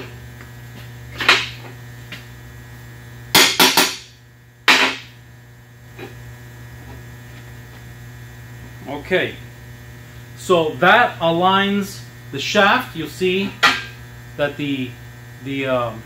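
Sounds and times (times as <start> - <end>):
electrical hum: 0.0 - 16.0.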